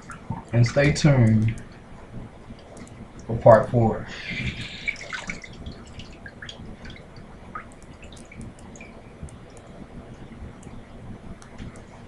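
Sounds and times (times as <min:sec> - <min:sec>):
water dripping into basin: 0:04.4 - 0:09.8.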